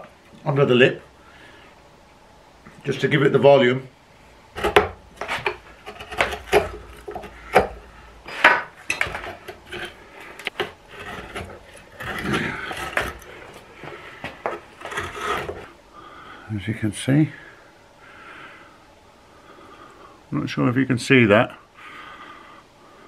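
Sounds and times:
carving tool scraping wood: 4.6s - 8.0s, 8.8s - 15.8s.

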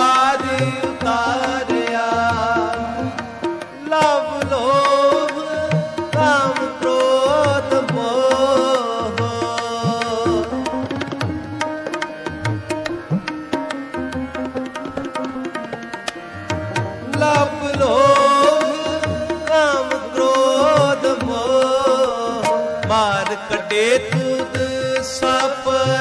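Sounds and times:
tabla playing: 0.0s - 26.0s
person singing wavering melody: 16.9s - 26.0s.

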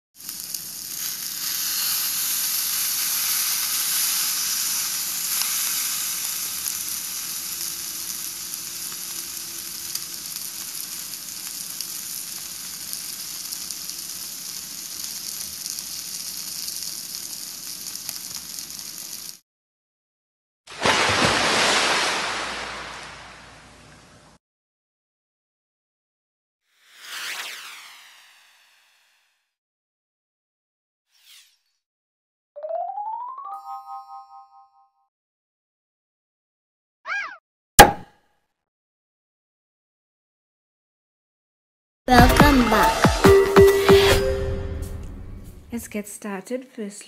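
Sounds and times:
chicken sizzling on grill: 0.1s - 19.4s.

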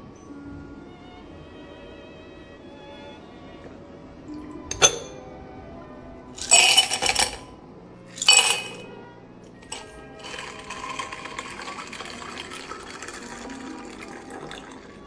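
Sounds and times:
soft background music: 0.0s - 15.0s
ice cubes clinking in glass: 6.4s - 7.5s, 8.1s - 8.9s, 9.6s - 15.0s.

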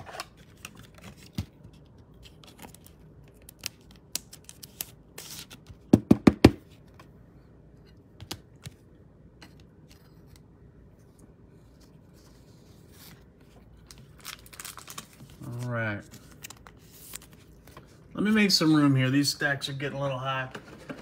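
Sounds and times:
cards clicking and rustling: 0.0s - 5.9s.

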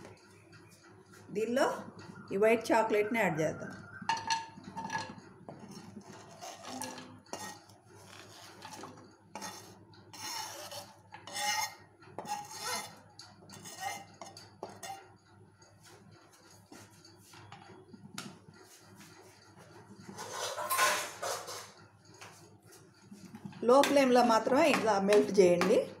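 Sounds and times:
knife scraping plastic cutting board: 5.5s - 15.0s.

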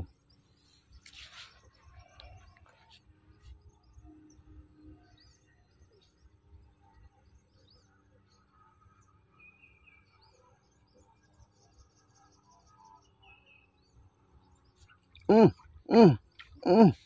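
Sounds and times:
faint bird chirps: 0.0s - 17.0s
faint riverside ambience: 0.0s - 17.0s.

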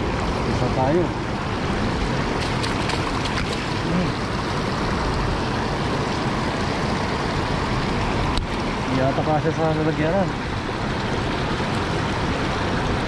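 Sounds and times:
river water rushing: 0.0s - 13.0s
light ticks and splashes: 2.3s - 3.9s, 7.8s - 12.2s.

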